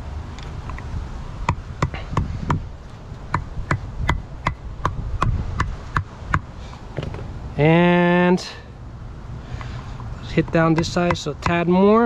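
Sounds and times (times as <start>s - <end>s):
rubber mallet tapping metal: 3.3s - 6.5s, 10.4s - 11.7s.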